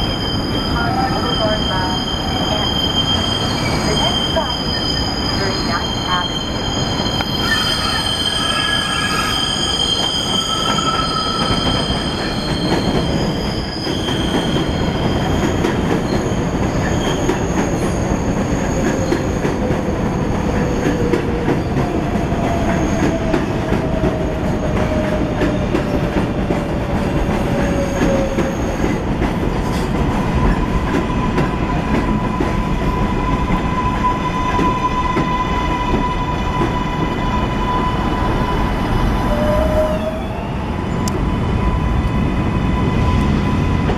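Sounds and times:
train wheels squealing: 0.0s - 21.8s, 27.5s - 29.0s
train cars rumbling and clattering: 0.0s - 43.9s.

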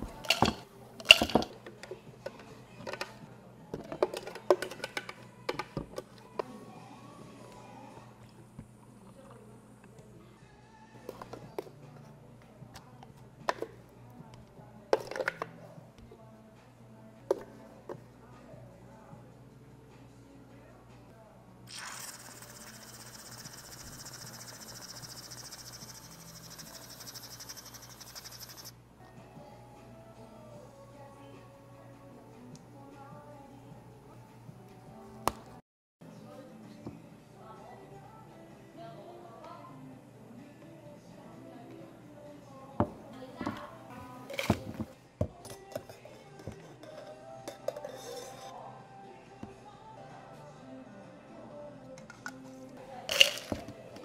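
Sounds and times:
cream dispenser hissing: 21.7s - 28.7s.

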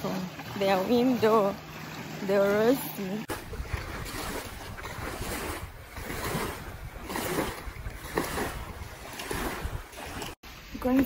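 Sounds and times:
small waves breaking on sand: 0.0s - 11.0s
wind rumbling on microphone: 3.3s - 11.0s.

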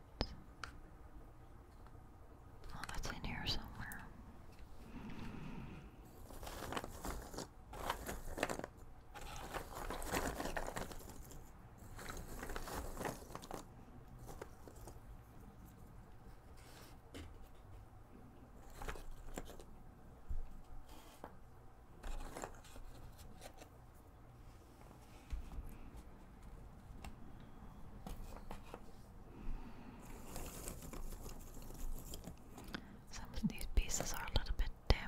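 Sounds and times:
jigsaw pieces rustling and clicking: 6.2s - 15.0s.

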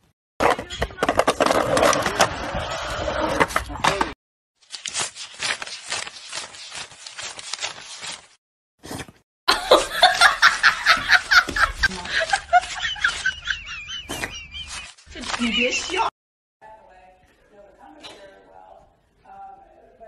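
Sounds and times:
person laughing: 9.5s - 16.1s.

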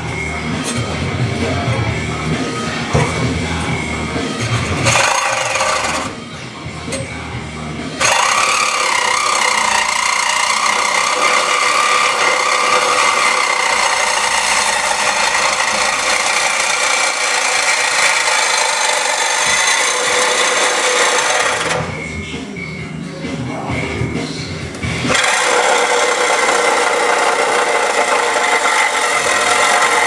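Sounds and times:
power tool cutting metal: 4.2s - 6.3s, 7.9s - 22.1s, 25.1s - 30.0s.

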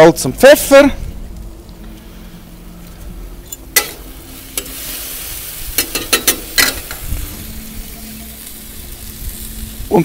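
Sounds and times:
vegetables sizzling on hot plate: 3.6s - 10.0s
metal spatula scraping and clacking: 5.8s - 7.0s.

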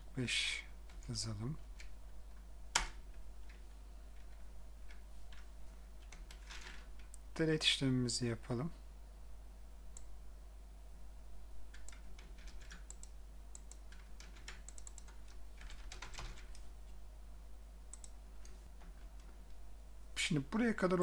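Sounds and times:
faint low hum: 0.0s - 21.0s
computer keyboard typing: 11.7s - 16.6s, 17.9s - 19.3s.

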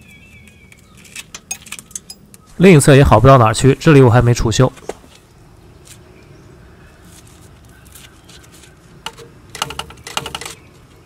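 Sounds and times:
light metal clicks and scrapes: 0.4s - 2.5s, 7.4s - 10.6s.

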